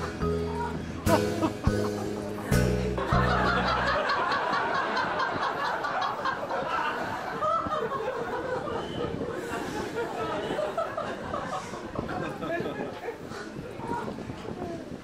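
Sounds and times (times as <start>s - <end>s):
background music with bass: 0.0s - 4.2s
people laughing: 1.0s - 13.6s.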